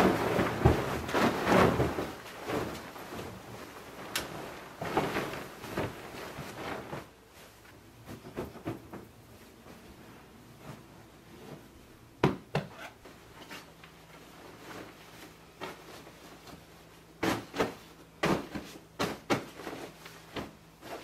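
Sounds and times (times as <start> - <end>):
pillow thumps and pats: 0.0 - 7.2, 17.2 - 21.0
fabric rustling: 0.0 - 11.9, 12.7 - 21.0.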